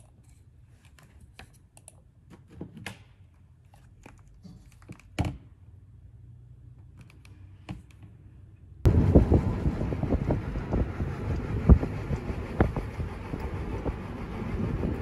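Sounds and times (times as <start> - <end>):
wind noise on microphone: 8.9 - 15.0.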